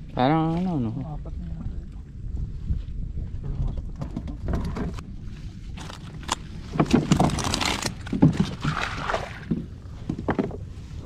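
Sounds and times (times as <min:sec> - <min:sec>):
wind rumbling on microphone: 0:00.0 - 0:11.0
gear rustling and knocking in kayak: 0:02.5 - 0:11.0.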